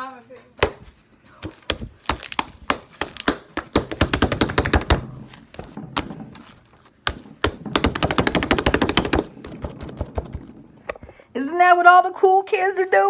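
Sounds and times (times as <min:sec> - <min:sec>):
hand slapping slime: 0:01.5 - 0:05.0.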